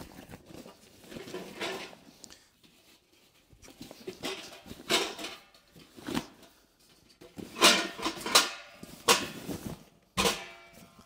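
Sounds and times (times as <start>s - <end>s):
fabric bag rustling: 8.8s - 10.1s.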